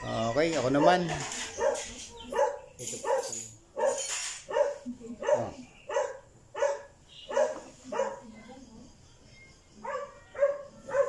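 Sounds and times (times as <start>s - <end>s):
dog barking: 0.7s - 8.3s, 9.8s - 11.0s.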